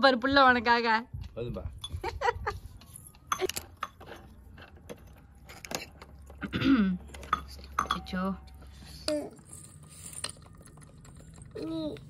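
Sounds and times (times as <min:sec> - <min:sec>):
metal spoon clinking on pots: 0:02.8 - 0:08.6.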